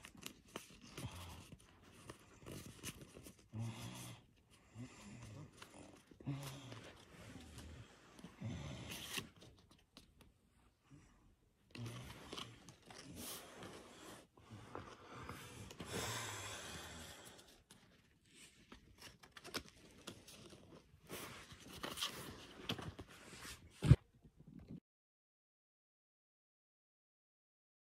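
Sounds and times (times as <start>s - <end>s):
trading cards rustling and sliding: 5.5s - 10.3s, 11.7s - 16.0s, 17.2s - 24.0s.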